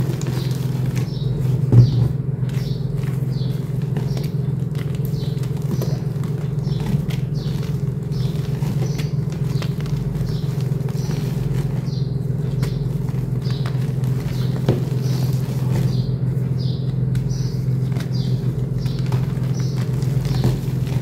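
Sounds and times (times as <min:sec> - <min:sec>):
steady low hum: 0:00.0 - 0:21.0
chalk crumbling in hands: 0:02.4 - 0:16.0.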